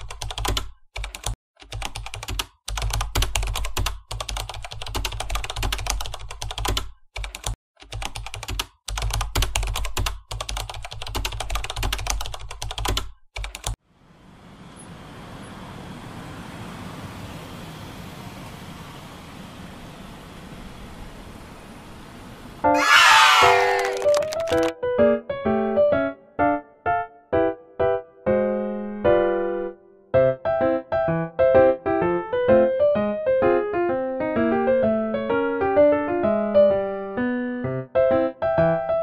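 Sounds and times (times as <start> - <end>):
fast typing on laptop keyboard: 0.0 - 13.8, 23.8 - 24.7.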